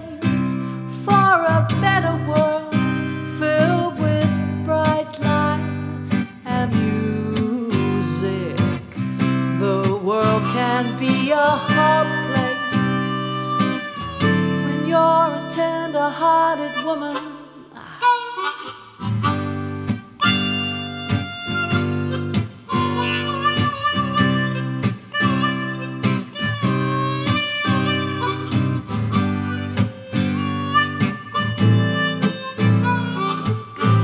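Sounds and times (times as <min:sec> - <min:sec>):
strummed acoustic guitar: 0:00.0 - 0:34.0
harmonica solo: 0:10.2 - 0:34.0.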